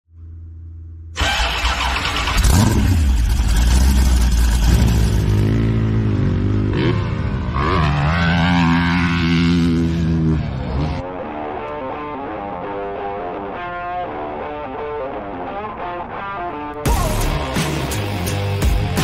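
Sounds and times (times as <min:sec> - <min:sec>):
engines revving hard: 0:01.2 - 0:11.0.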